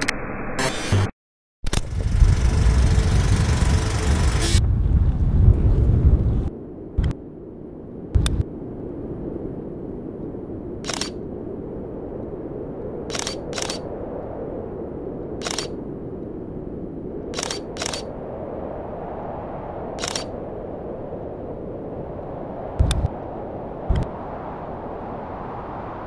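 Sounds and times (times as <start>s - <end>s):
steady rushing background noise: 1.7s - 4.8s, 17.3s - 18.2s, 20.0s - 20.4s
camera shutter clicking: 10.9s - 11.2s, 13.1s - 13.8s, 15.4s - 15.7s, 17.4s - 18.1s, 20.0s - 20.3s.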